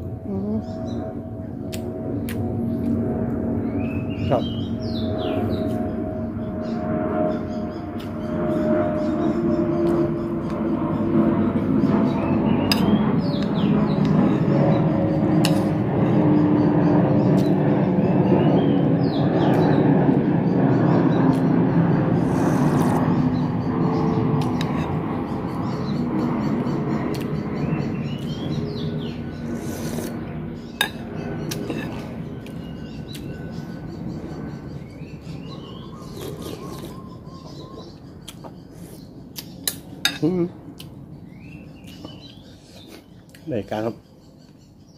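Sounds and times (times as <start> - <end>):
faint bird chirps: 20.5 - 40.5.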